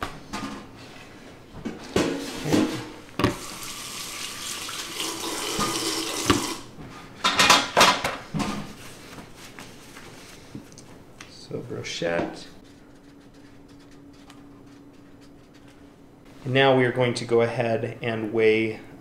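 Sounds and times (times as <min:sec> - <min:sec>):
faucet running over hands: 0:03.4 - 0:06.6
towel rustling: 0:08.6 - 0:10.6.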